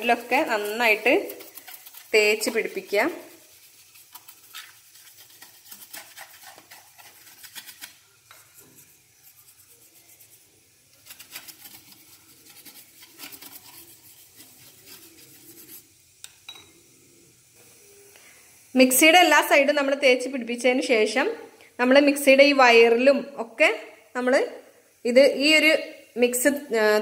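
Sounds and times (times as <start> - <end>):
brush scrubbing plastic: 0.0 - 16.1.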